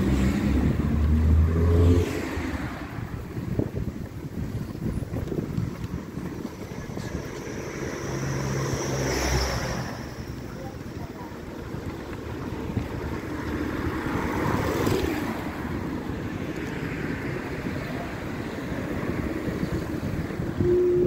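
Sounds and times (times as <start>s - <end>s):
vehicle passing: 0.0s - 4.1s, 4.8s - 21.0s
street traffic: 0.0s - 21.0s
wind noise: 0.0s - 21.0s
short steady tone: 20.6s - 21.0s.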